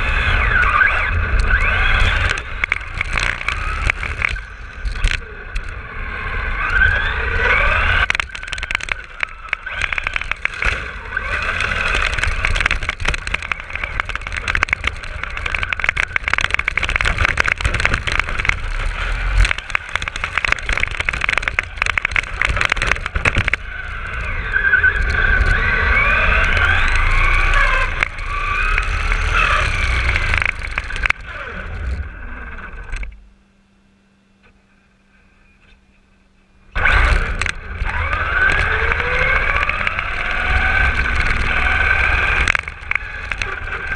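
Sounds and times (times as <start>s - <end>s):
toy car motor whining: 0.0s - 5.1s, 6.4s - 32.6s, 36.8s - 43.9s
tyre and wind rumble: 0.0s - 32.2s.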